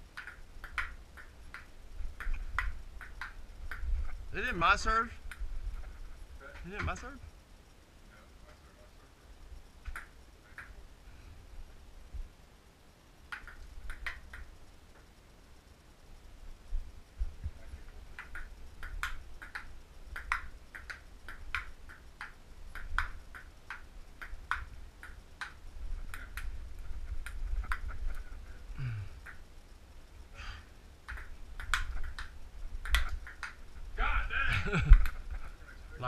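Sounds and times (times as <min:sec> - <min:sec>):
table tennis ball clicking: 0:00.1 - 0:03.9, 0:09.9 - 0:10.8, 0:13.3 - 0:14.5, 0:18.1 - 0:28.2, 0:29.2 - 0:29.5, 0:31.0 - 0:33.7.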